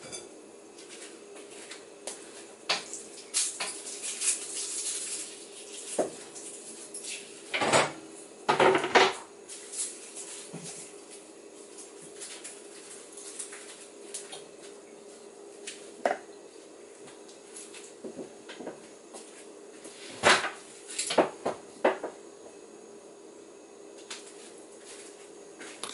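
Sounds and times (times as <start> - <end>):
steady hum: 0.0 - 25.9
dishes clinking and knocking: 7.6 - 9.2.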